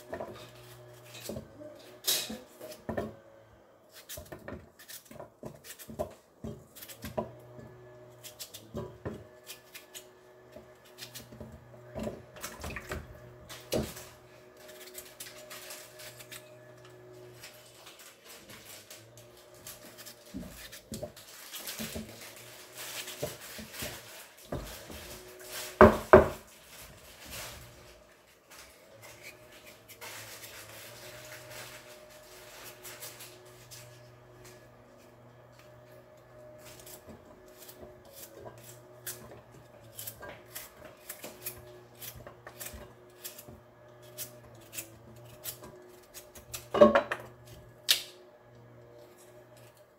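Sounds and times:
knife cutting potato: 3.9 - 17.7, 18.5 - 26.4, 32.1 - 49.9.

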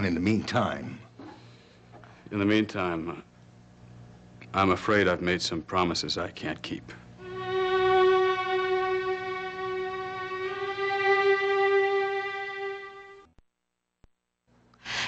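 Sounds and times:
long held violin note: 7.2 - 13.3.

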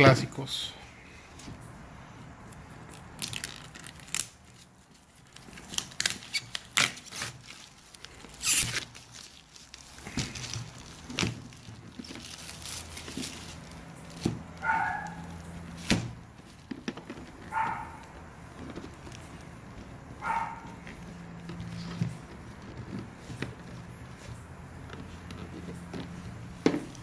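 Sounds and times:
plastic shrink wrap tearing: 2.4 - 16.8.

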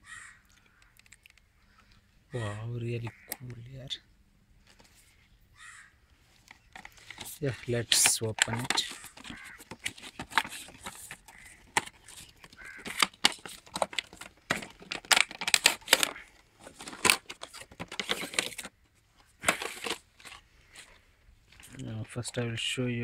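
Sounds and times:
stiff plastic clicks: 0.5 - 1.9, 6.5 - 18.7
packaging crackling and rustling: 6.4 - 21.9.

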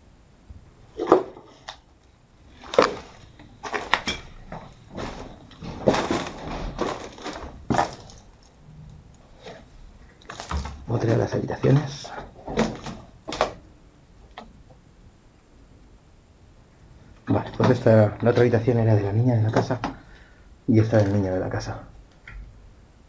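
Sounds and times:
footsteps crunching over debris: 2.5 - 8.6, 9.5 - 13.5.

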